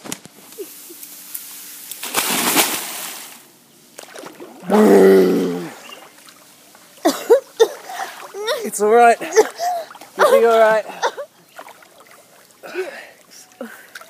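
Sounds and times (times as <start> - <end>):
water sloshing: 1.9 - 14.0
splash into pool: 2.0 - 3.4, 4.0 - 6.4
person gasping: 12.6 - 14.0.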